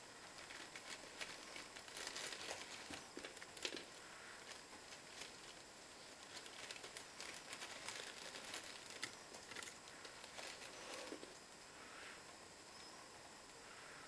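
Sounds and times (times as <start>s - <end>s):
plastic parts clicking and rustling: 0.4s - 5.6s, 6.2s - 11.4s.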